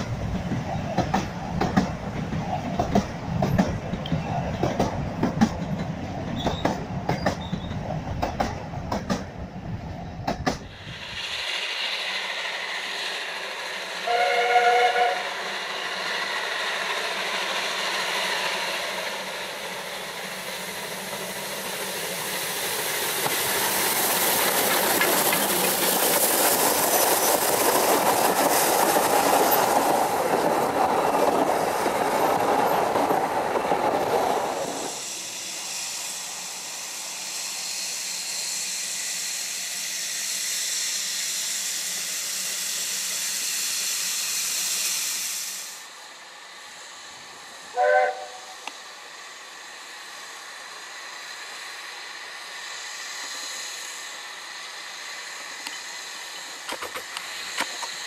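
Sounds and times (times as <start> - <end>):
train carriages rumbling past: 0.0 - 40.5
steam hissing from locomotive: 0.0 - 58.0
steam whistle toot: 14.0 - 15.5, 47.7 - 48.7.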